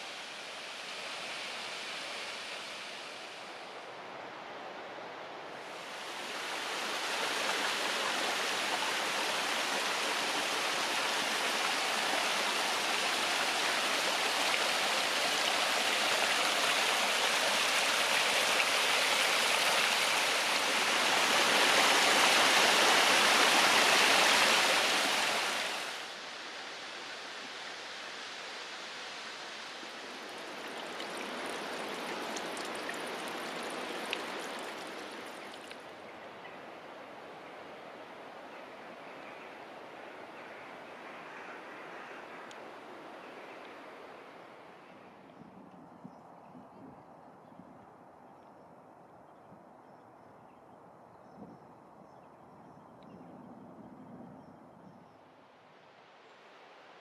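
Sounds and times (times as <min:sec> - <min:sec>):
waterfall splashing on rock: 0:29.2 - 0:35.8.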